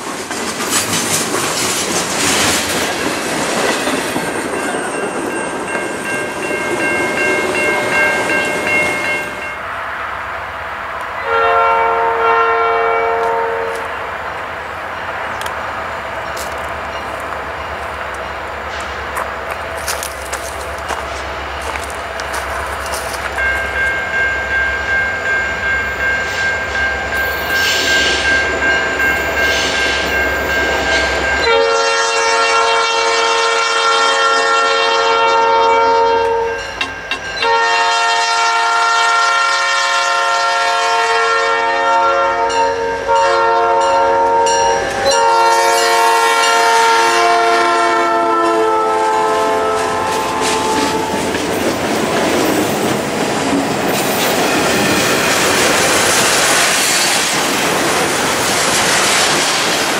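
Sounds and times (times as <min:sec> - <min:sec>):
wheels clacking over rail joints: 0:00.0 - 0:08.8, 0:49.7 - 0:59.9
diesel locomotives rumbling: 0:00.0 - 0:59.9
locomotive air horn blasts: 0:11.2 - 0:14.0, 0:31.4 - 0:36.6, 0:37.4 - 0:51.3.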